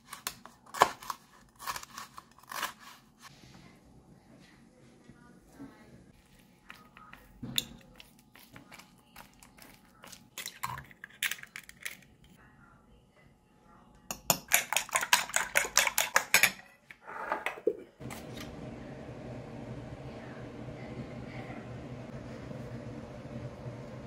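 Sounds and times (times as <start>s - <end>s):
fork beating eggs in bowl: 6.3s - 11.8s, 14.1s - 16.7s.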